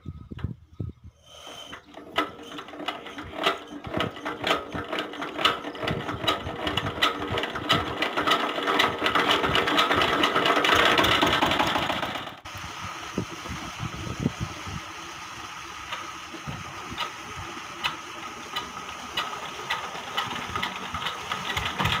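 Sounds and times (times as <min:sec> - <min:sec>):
engine hand crank clattering: 0:01.5 - 0:12.4, 0:17.8 - 0:22.0.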